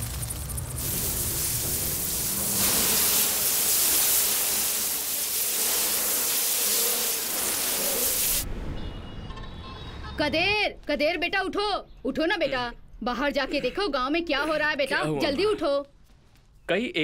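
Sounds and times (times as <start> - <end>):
locust swarm wings rushing: 0.0 - 8.4.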